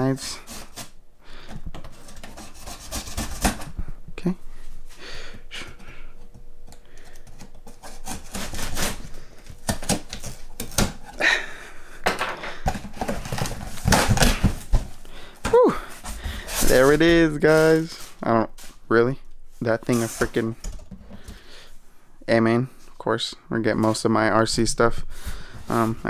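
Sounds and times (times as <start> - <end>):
cardboard rubbing and rustling: 1.8 - 3.8, 7.5 - 11.0, 12.7 - 15.0, 15.9 - 18.7
knife slicing packing tape: 7.8 - 9.0.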